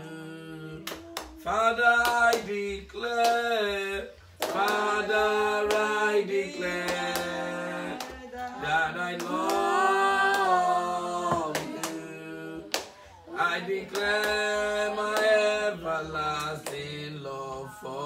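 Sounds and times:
sharp claps: 0:00.8 - 0:03.6, 0:04.4 - 0:04.9, 0:09.2 - 0:09.7, 0:11.4 - 0:12.0.

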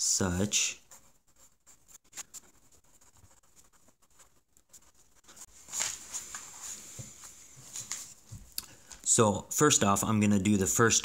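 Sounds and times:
pencil scratching on paper: 0:00.8 - 0:07.4.

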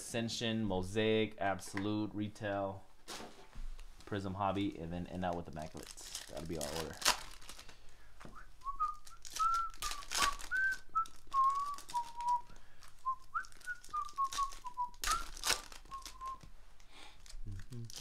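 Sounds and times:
foil wrappers crinkling and tearing: 0:05.1 - 0:07.9, 0:08.8 - 0:18.0
person whistling a tune: 0:08.3 - 0:16.4.

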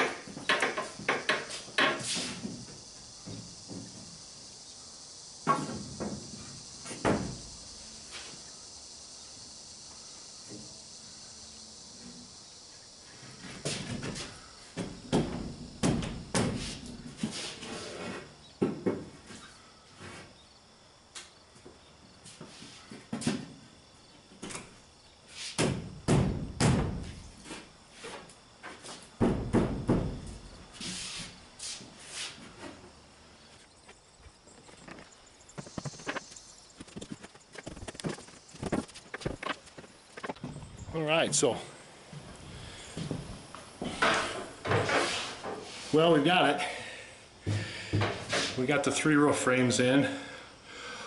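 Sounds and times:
wooden boards knocking: 0:00.0 - 0:02.6, 0:29.2 - 0:30.5
wooden knocks and thumps: 0:00.0 - 0:04.2, 0:05.4 - 0:07.4, 0:13.5 - 0:17.3, 0:25.6 - 0:27.2, 0:28.6 - 0:30.5, 0:34.2 - 0:41.4, 0:47.5 - 0:48.4.

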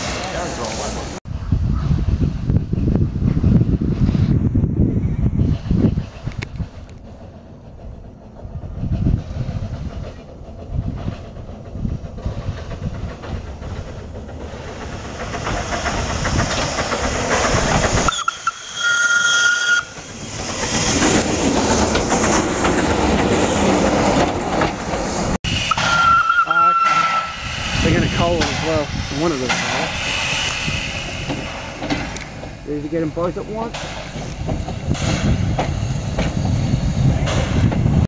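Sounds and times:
train rumble and wheel clatter: 0:00.0 - 0:38.0
steam whistle blast: 0:18.1 - 0:20.0, 0:25.5 - 0:27.5.

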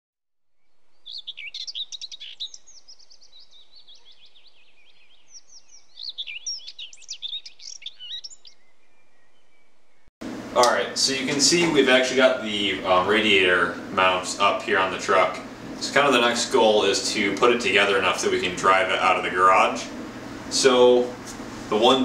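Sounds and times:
bird chirping and trilling: 0:00.6 - 0:10.1.

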